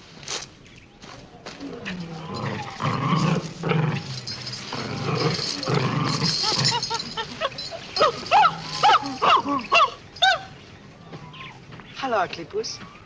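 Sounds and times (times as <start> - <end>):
dog growling: 1.7 - 6.9.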